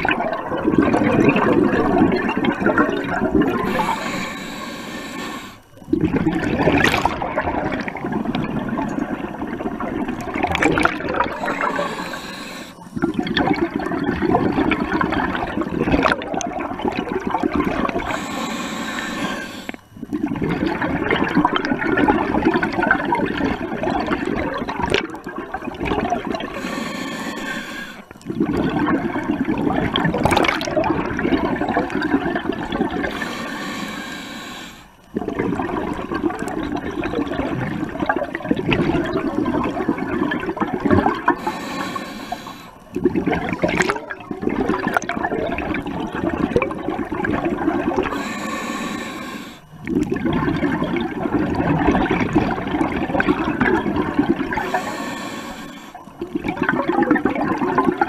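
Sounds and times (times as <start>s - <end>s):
bubbling regulator exhalations: 0.0s - 58.0s
thin hiss of inhaling: 3.6s - 5.7s, 11.4s - 13.0s, 18.0s - 19.8s, 26.5s - 28.1s, 33.0s - 35.0s, 41.4s - 42.9s, 48.1s - 49.7s, 54.6s - 56.1s.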